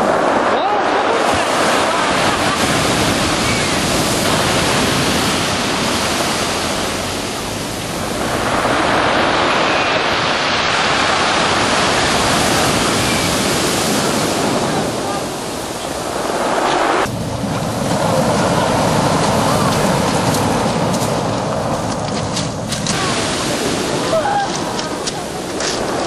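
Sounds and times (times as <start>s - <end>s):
waves washing over pebbles: 0.0s - 26.0s.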